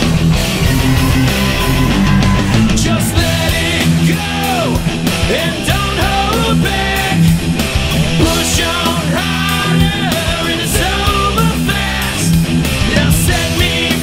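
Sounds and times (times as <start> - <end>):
lead guitar bending in pitch: 0.0 - 6.6
rock band music: 0.0 - 14.0.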